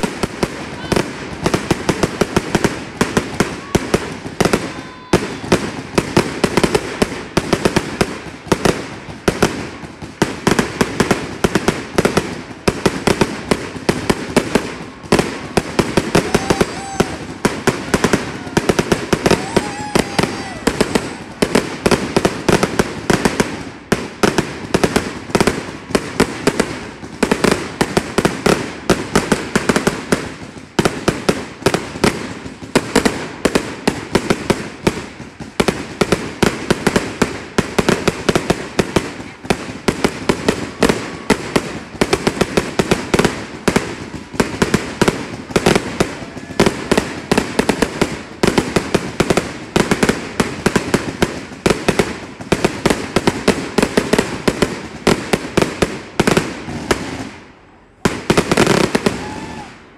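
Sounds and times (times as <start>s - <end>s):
fireworks launch thuds and bursts: 0.0s - 59.7s.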